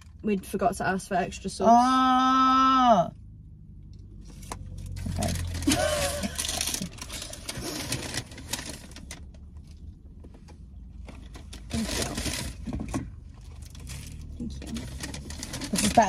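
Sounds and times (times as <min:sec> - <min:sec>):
paper wrappers crinkling: 0:04.6 - 0:09.3, 0:11.2 - 0:16.0.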